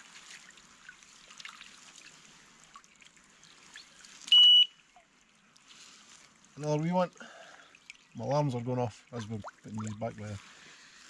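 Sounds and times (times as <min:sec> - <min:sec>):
water trickling and splashing: 0:00.0 - 0:11.0
electronic bite alarm beep: 0:04.3 - 0:04.7.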